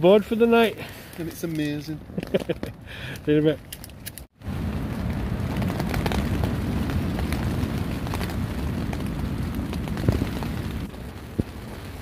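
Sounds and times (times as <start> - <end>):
rain pattering on fabric: 4.4 - 12.0.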